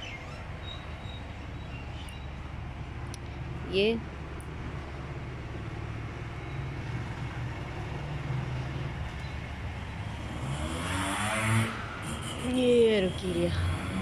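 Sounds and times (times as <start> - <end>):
low mechanical rumble: 0.0 - 10.1.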